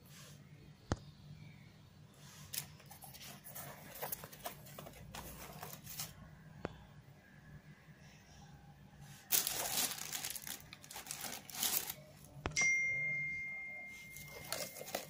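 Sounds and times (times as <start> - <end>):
tissue paper crinkling: 2.5 - 6.2, 9.2 - 12.2, 13.9 - 15.0
clear ringing tone: 12.5 - 15.0.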